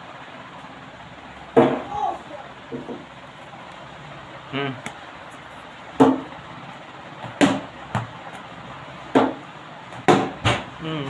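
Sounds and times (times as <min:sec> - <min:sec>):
plastic bat knocking ball: 0:01.6 - 0:01.9, 0:06.0 - 0:06.3, 0:07.2 - 0:08.2, 0:09.1 - 0:10.7.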